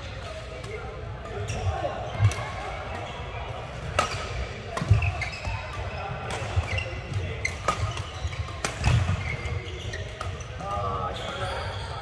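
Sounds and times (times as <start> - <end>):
rackets striking shuttlecock: 3.6 - 11.5
shoes thudding and squeaking: 4.8 - 12.0.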